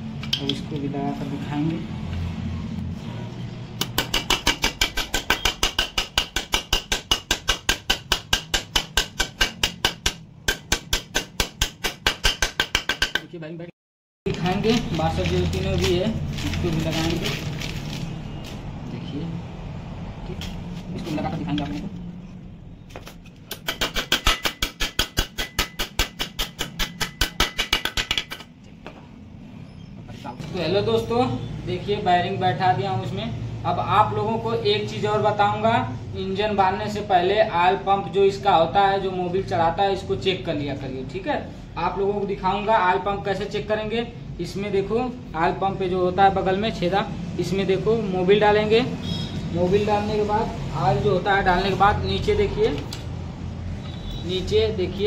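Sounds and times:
rapid metal-on-metal tapping: 3.8 - 13.3, 23.5 - 28.5.

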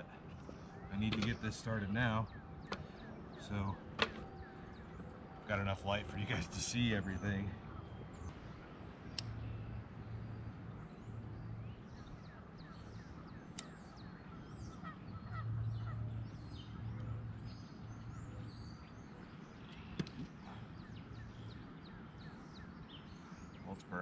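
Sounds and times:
short bird calls: 10.4 - 24.0
sharp clicks: 13.5 - 13.8.

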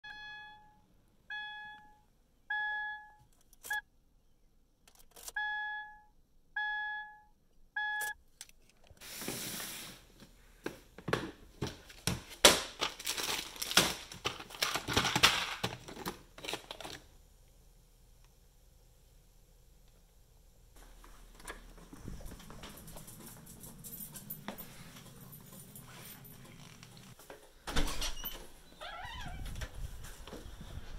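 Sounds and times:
car warning chime beeping: 0.0 - 3.8, 5.4 - 8.2
plastic bin rustling: 9.0 - 17.0
parts rummaged clicks and knocks: 11.0 - 17.0.

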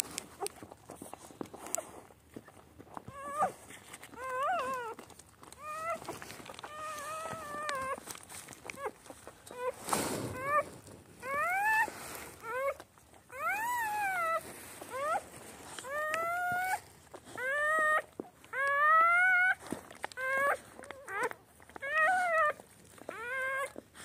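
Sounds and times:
rustle: 0.0 - 24.0
puppies squealing: 3.1 - 8.0, 8.7 - 19.6, 20.2 - 23.8.

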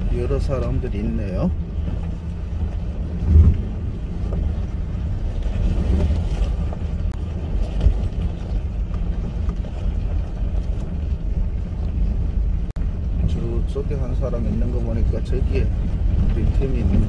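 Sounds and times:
van engine and tyres rumbling: 0.0 - 17.0
low thump: 3.2 - 4.5.

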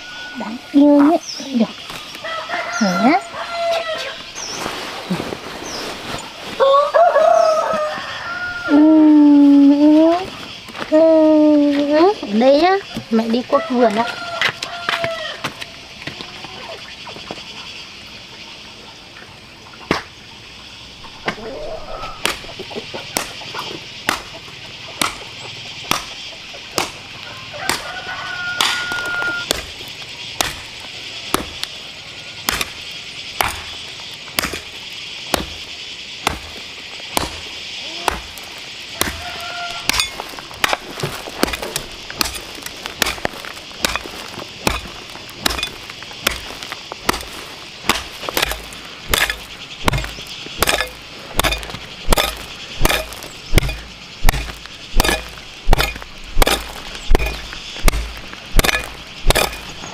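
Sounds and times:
hoe chopping into stony dirt: 25.0 - 25.2, 25.8 - 26.2, 26.8 - 27.0, 27.6 - 28.0, 28.6 - 29.8, 30.4 - 31.7, 32.4 - 32.8, 33.4 - 34.7, 35.3 - 35.6, 36.2 - 36.6, 37.2 - 37.4, 38.0 - 59.9.

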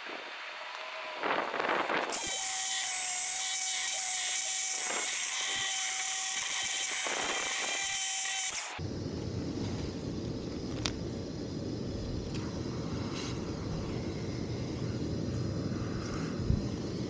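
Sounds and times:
power tool whining: 0.0 - 8.8.

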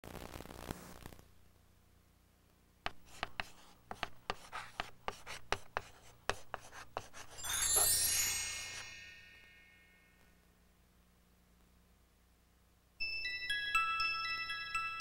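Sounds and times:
tape hiss: 0.0 - 15.0
chalk writing on blackboard: 2.9 - 7.4
bright shimmering chime: 7.3 - 10.4.

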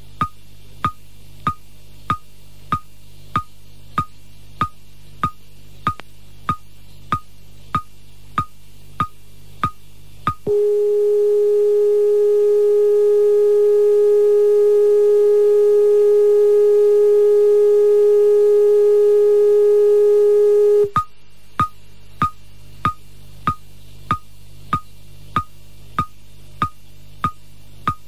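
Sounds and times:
low mains hum: 0.0 - 28.0
steady radio test tone: 10.5 - 20.9.

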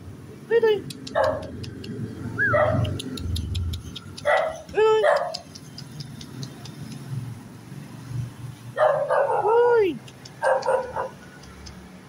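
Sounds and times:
small dog barking: 1.1 - 1.6, 2.5 - 3.0, 4.2 - 5.6, 8.8 - 9.6, 10.4 - 11.2.

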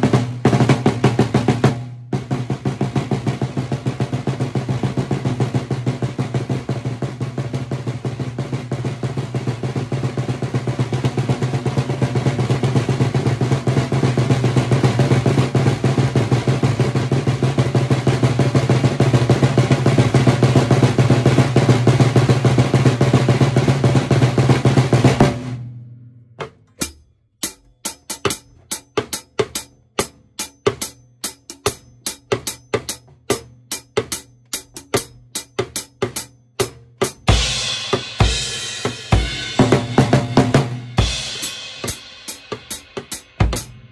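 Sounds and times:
snare drum roll: 0.0 - 25.7, 26.4 - 43.9
bass drum: 26.4 - 43.9
single snare drum strokes: 26.4 - 43.9
cymbals: 26.8 - 43.9.

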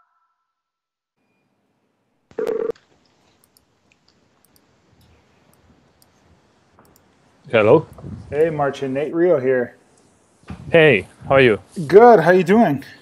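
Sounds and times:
telephone call tone: 2.4 - 2.7.

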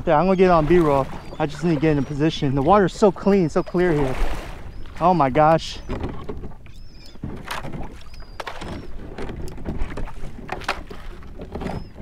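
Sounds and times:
water lapping against kayak hull: 0.0 - 12.0
wind rumble on microphone: 0.0 - 12.0.

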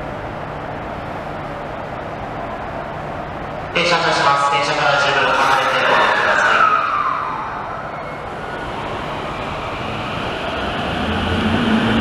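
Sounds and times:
subway train pulling away: 0.0 - 12.0
falling tone: 4.8 - 10.6
rising traction motor tone: 5.0 - 12.0.

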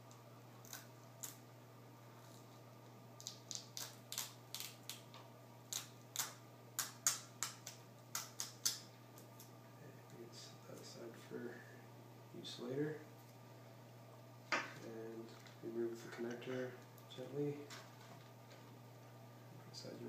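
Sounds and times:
tape peeling clicks and crackles: 0.0 - 1.4, 3.2 - 9.5.

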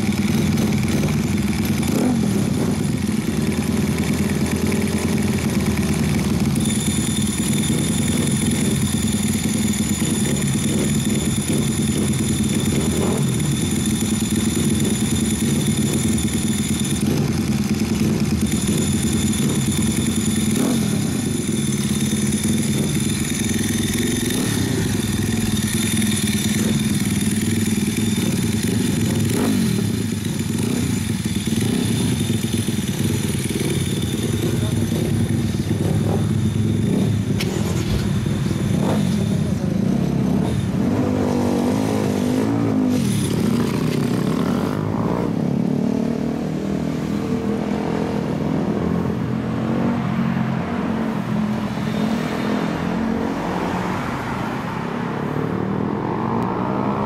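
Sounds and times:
second motorcycle idling: 0.0 - 40.8, 42.8 - 44.9
small motorcycle engine idling: 0.0 - 45.8.

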